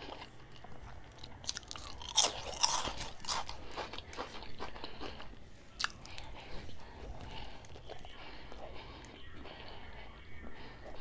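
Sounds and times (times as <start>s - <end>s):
chewing crisp chip: 0.0s - 9.8s.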